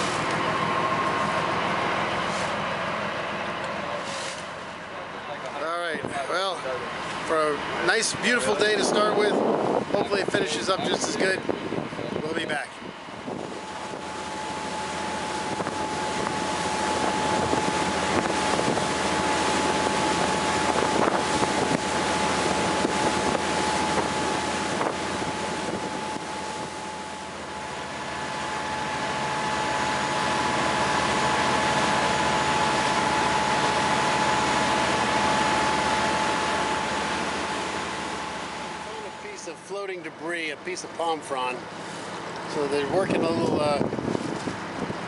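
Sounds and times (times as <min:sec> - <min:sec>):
boat engine drone with whine: 0:00.0 - 0:45.0
higher whine: 0:00.0 - 0:45.0
water rushing along hull: 0:00.0 - 0:45.0
wind on microphone: 0:08.4 - 0:27.1, 0:42.8 - 0:45.0.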